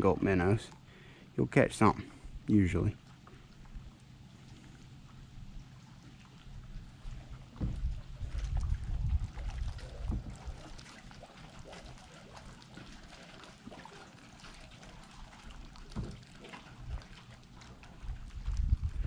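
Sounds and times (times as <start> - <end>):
water lapping against a hull: 0.0 - 19.0
small ticks and splashes: 2.8 - 19.0
low rumbles: 4.6 - 10.8, 18.0 - 19.0.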